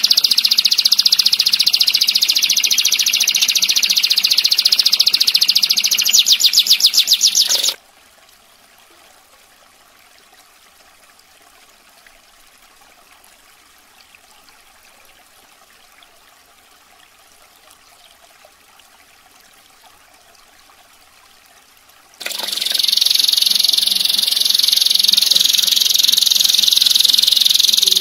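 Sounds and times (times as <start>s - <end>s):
canary rapid high-pitched trill: 0.0s - 7.8s, 22.2s - 28.0s
faint trickling water: 0.0s - 28.0s.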